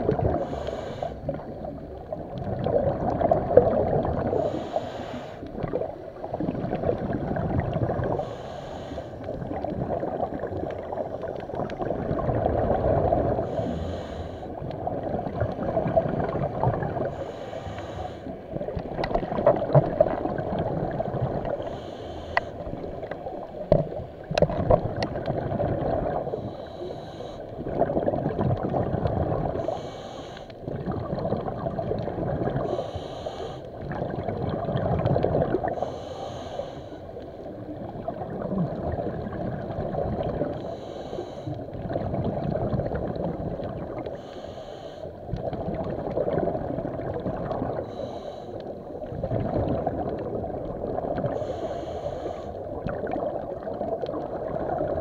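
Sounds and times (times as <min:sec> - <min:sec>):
sloshing gurgling water: 0:00.0 - 0:55.0
swimmer breathing: 0:00.3 - 0:01.4, 0:04.3 - 0:05.6, 0:08.0 - 0:09.5, 0:13.3 - 0:14.8, 0:17.0 - 0:18.6, 0:21.4 - 0:24.2, 0:26.2 - 0:27.7, 0:29.5 - 0:30.6, 0:32.6 - 0:33.8, 0:35.6 - 0:37.6, 0:40.5 - 0:41.8, 0:44.0 - 0:45.3, 0:47.8 - 0:49.0, 0:51.2 - 0:52.8.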